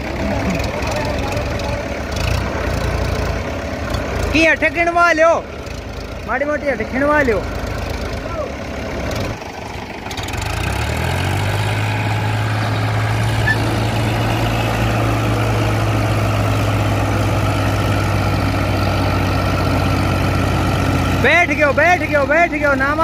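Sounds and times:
tractor diesel engines under load: 0.0s - 23.0s.

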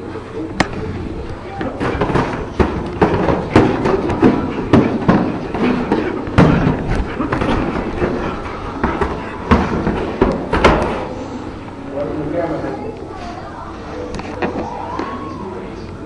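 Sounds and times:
punches smacking and thudding: 1.6s - 11.1s.

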